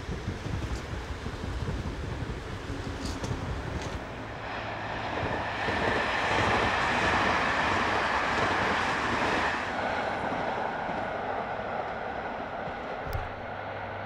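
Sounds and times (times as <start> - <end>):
train rumbling past on rails: 0.0 - 14.0.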